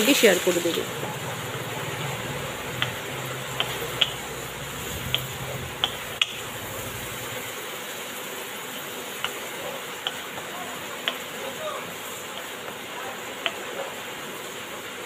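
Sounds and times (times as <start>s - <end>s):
steady sizzle: 0.0s - 15.0s
spatula knocking and scraping pan: 1.0s - 7.0s, 9.2s - 11.2s.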